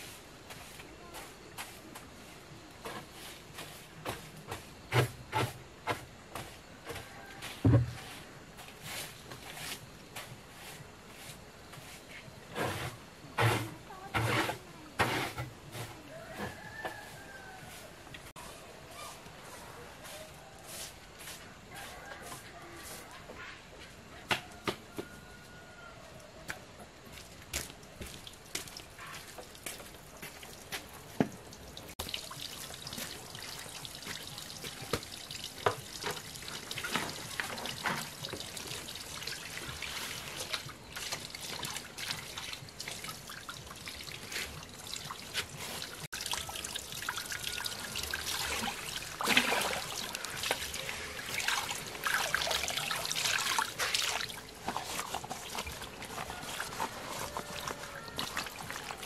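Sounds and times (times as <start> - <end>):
water trickling from a hose: 27.2 - 59.0
leaves splashing in water: 31.6 - 59.0.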